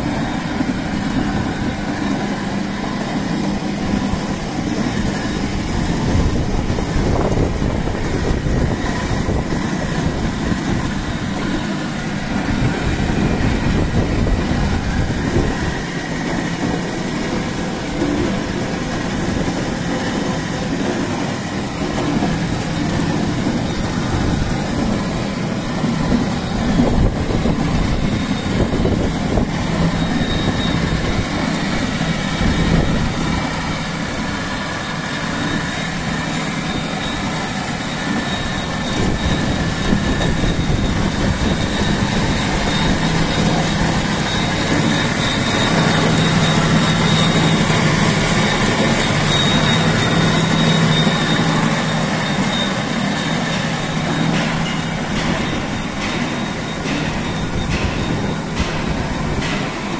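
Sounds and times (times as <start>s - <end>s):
motor hum: 0.0s - 59.9s
conveyor chain clattering: 12.3s - 59.9s.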